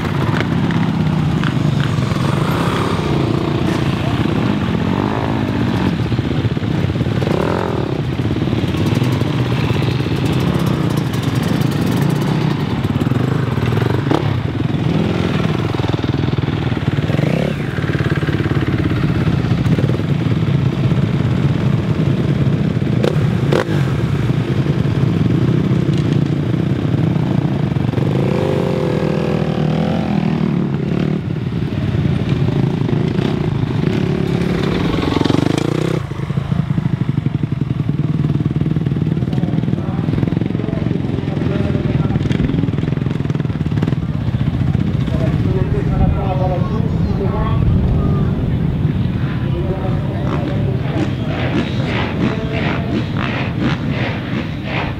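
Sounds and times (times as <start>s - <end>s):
motocross bikes idling and revving: 0.0s - 54.9s
sharp clacks: 50.3s - 54.9s.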